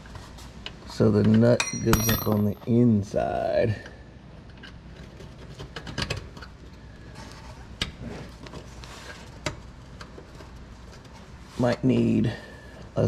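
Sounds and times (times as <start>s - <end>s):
metallic clicks and clinks: 1.5s - 2.7s.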